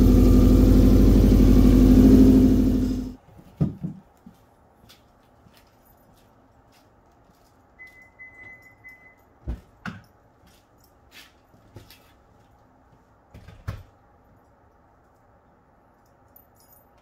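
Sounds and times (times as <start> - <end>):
faint high tone: 7.8 - 9.3.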